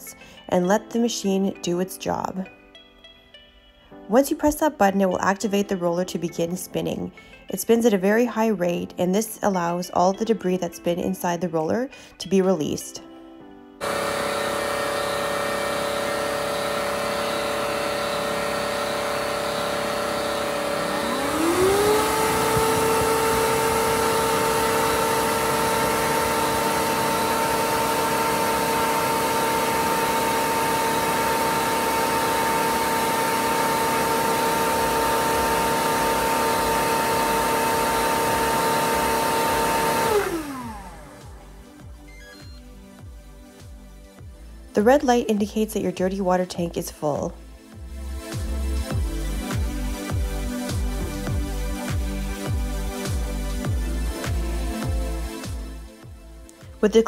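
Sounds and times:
vacuum motor whining: 13.8s - 42.7s.

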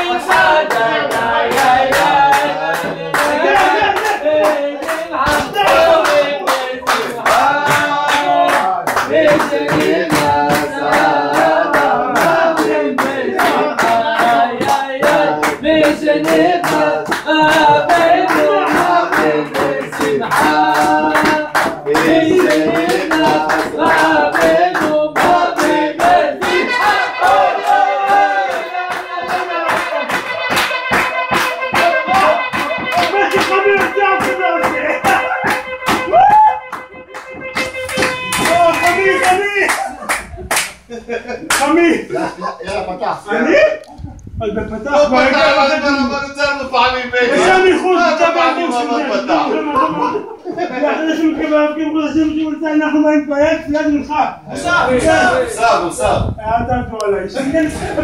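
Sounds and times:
group of voices singing: 0.0s - 36.2s
hand-clapping beat: 0.0s - 40.8s, 41.5s - 41.7s.

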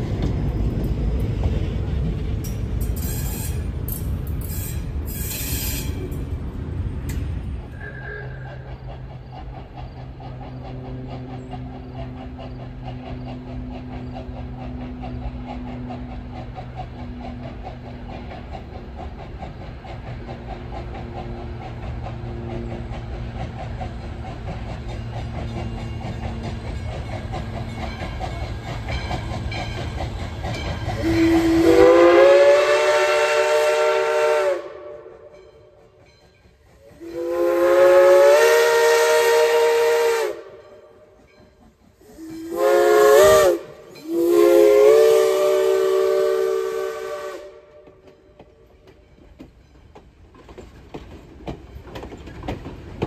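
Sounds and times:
low rumble of train: 0.0s - 53.0s
steam whistle blasts: 7.8s - 8.7s, 30.9s - 35.4s, 37.0s - 40.7s, 42.1s - 47.8s.

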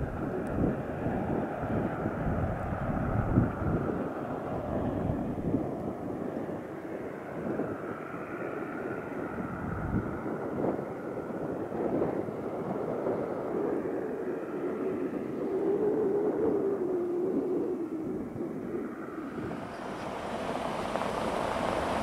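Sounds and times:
car engine rumble: 0.0s - 22.0s.

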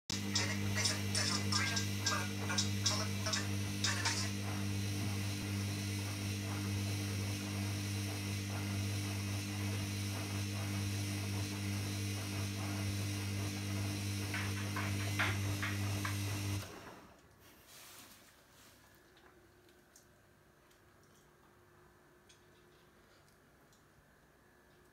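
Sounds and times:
washing machine motor humming: 0.1s - 17.2s.

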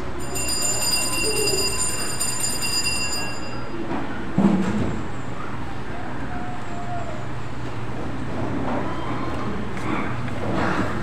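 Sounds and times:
high-pitched ringing: 0.0s - 4.0s
crowd hum and rustle: 0.0s - 11.0s.

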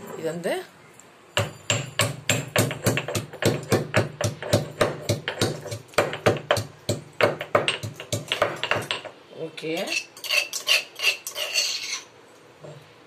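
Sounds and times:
stone pestle pounding in mortar: 1.4s - 9.1s.

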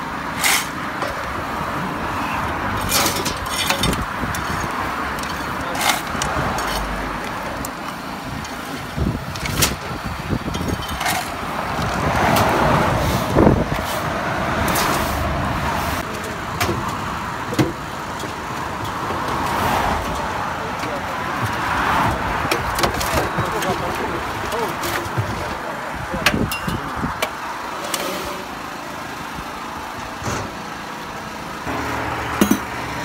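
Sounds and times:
vehicle and machinery noise: 0.0s - 33.0s
sharp clicks and knocks: 16.0s - 25.5s.

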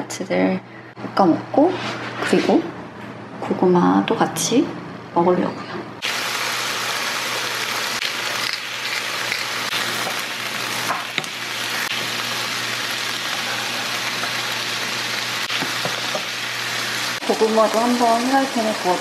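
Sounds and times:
food sizzling in a frying pan: 6.0s - 19.0s.

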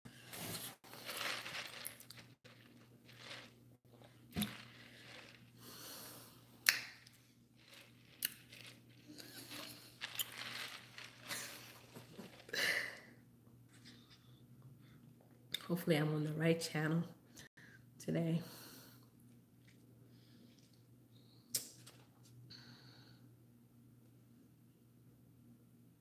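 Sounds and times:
rustling handling noises: 0.2s - 5.8s, 7.6s - 12.9s.

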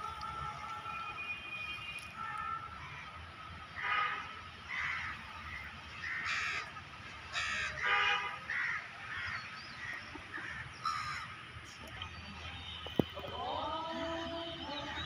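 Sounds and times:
crows cawing: 3.8s - 11.4s.

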